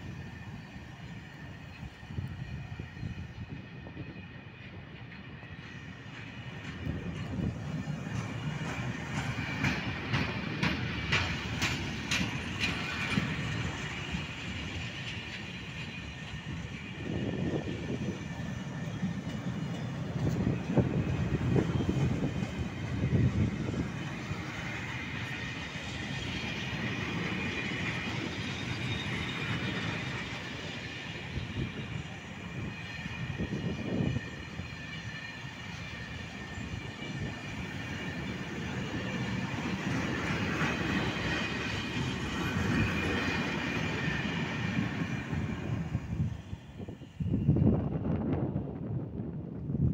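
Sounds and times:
train wheels rumbling on rails: 0:00.0 - 0:49.9
clicking over rail joints: 0:06.1 - 0:13.4
high wheel squeal: 0:24.8 - 0:47.4.

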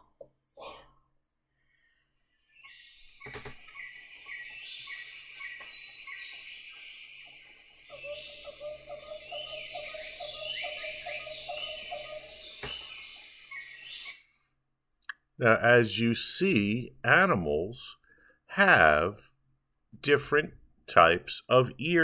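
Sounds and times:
insects: 0:02.2 - 0:14.2
birds chirping and whistling: 0:02.2 - 0:14.3
rapid repeated low animal call: 0:07.4 - 0:13.8.

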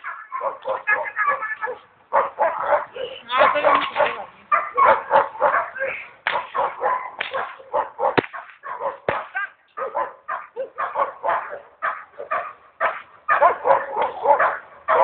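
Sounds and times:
dog barking: 0:00.0 - 0:15.0
whip-like crack: 0:06.2 - 0:09.5.

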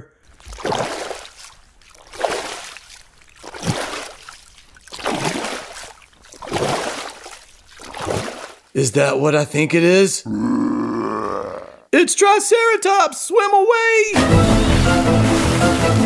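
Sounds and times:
water splashing: 0:00.2 - 0:09.0, 0:14.1 - 0:16.0.

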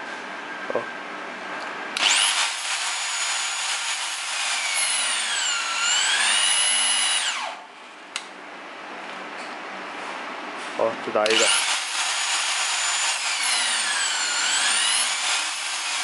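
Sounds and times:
electric wrench motor whine: 0:02.0 - 0:07.6, 0:11.3 - 0:16.0
sharp click: 0:08.1 - 0:08.3.

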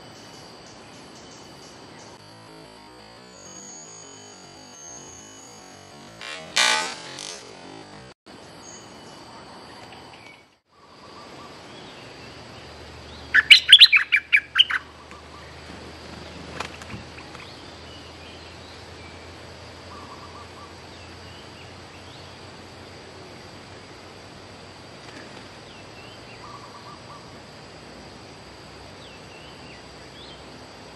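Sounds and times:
bulbul song: 0:08.6 - 0:15.6
faint bird calls: 0:09.8 - 0:18.4, 0:19.8 - 0:22.4, 0:25.1 - 0:27.4.

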